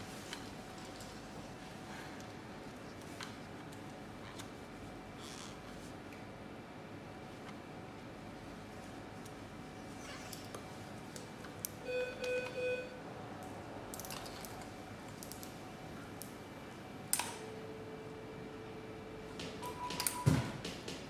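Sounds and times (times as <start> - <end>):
click: 17.1 - 17.4.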